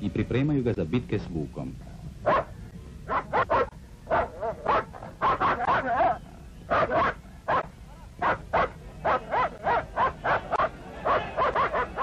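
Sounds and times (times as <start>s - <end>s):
dog barking sharply: 2.2s - 2.5s, 3.1s - 6.1s, 6.7s - 12.0s.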